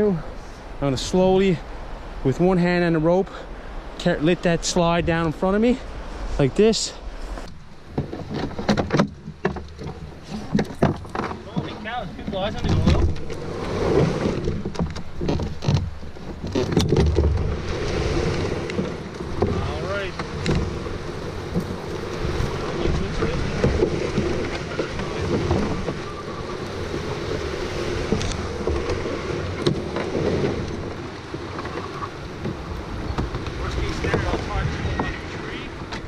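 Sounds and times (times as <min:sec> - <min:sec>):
canoe hull scraping through brush: 0:00.0 - 0:36.0
hull knocking against branches: 0:07.4 - 0:17.7, 0:18.3 - 0:36.0.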